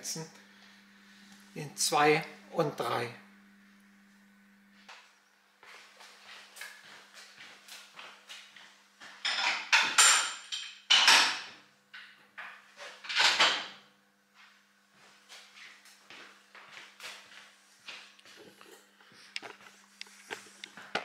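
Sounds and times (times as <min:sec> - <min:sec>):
footsteps on floor: 0:04.8 - 0:09.2, 0:14.4 - 0:21.0.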